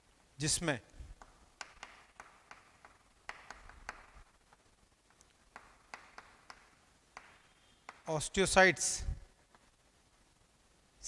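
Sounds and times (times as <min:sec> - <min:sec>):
chalk writing on chalkboard: 0:01.6 - 0:04.2, 0:05.5 - 0:08.1.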